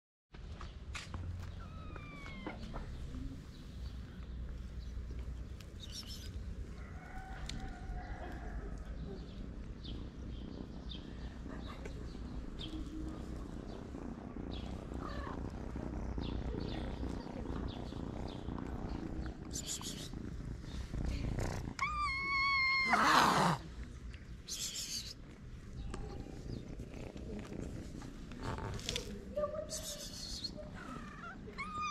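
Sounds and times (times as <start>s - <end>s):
cats purring: 1.1s - 31.9s
scratchy rustles of petting: 1.2s - 22.9s, 23.7s - 31.9s
cat meowing: 1.6s - 3.0s, 21.7s - 23.6s, 30.9s - 31.9s.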